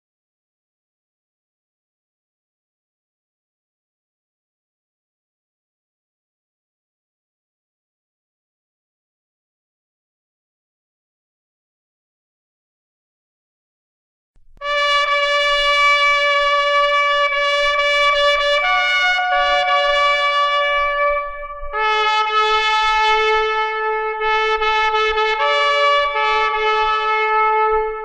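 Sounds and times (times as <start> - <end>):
slow brass music: 14.6 - 28.0.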